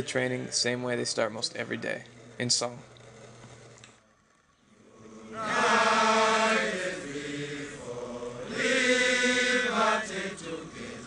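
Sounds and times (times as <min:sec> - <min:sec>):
group singing chant-like song: 0:04.7 - 0:11.0.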